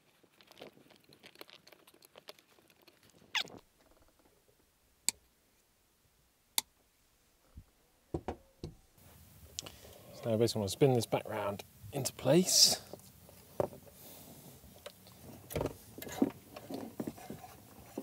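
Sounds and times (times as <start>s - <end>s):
soft knocks: 8.1s - 8.8s.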